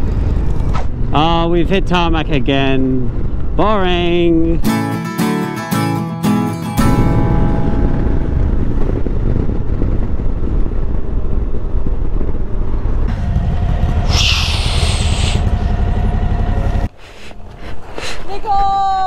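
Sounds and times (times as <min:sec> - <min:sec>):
motorcycle engine: 0:06.8 - 0:17.0
wind on microphone: 0:06.9 - 0:16.0
brief high hiss: 0:14.1 - 0:15.4.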